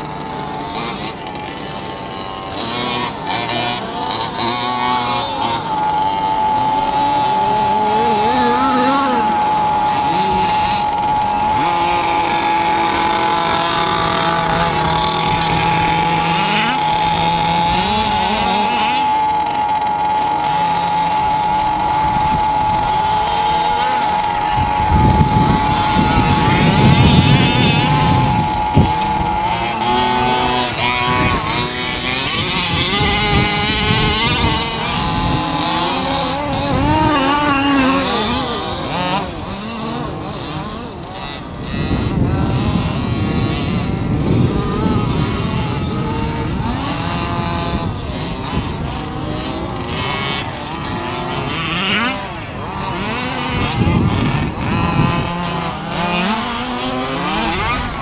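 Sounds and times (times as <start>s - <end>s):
low rumbling noise: 0.0s - 51.8s
rc car engines buzzing and revving: 0.0s - 58.0s.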